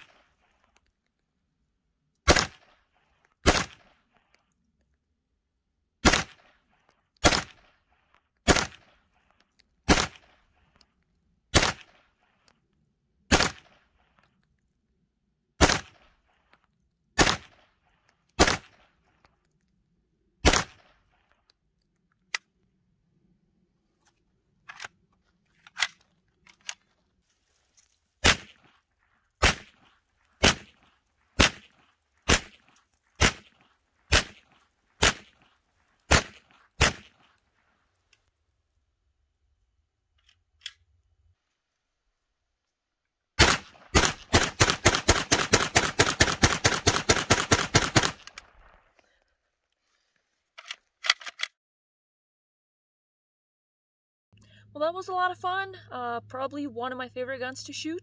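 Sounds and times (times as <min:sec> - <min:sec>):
pistol shots with echo: 0:02.3 - 0:02.7, 0:06.0 - 0:06.5, 0:07.2 - 0:07.6, 0:08.5 - 0:08.9, 0:09.9 - 0:10.3, 0:11.5 - 0:12.0, 0:13.3 - 0:13.7, 0:15.6 - 0:16.0, 0:17.2 - 0:17.6, 0:20.4 - 0:20.8, 0:29.4 - 0:29.8, 0:30.4 - 0:30.8, 0:31.4 - 0:31.7, 0:32.3 - 0:35.4, 0:36.1 - 0:37.2, 0:43.4 - 0:48.2.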